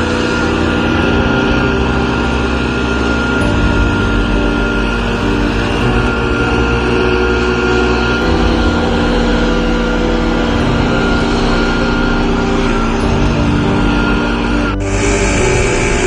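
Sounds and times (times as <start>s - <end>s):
leaf blower engine running: 0.0s - 16.0s.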